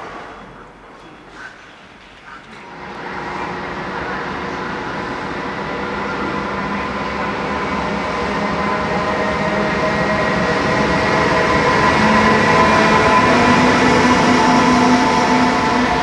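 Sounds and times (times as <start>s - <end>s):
electric locomotive whining: 0.0s - 16.0s
train wheels rumbling: 0.0s - 16.0s.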